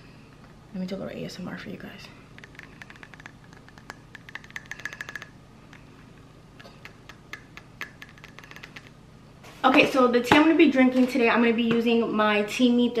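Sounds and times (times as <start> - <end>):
fingernails tapping on ceramic mug: 2.4 - 5.9, 6.8 - 8.9.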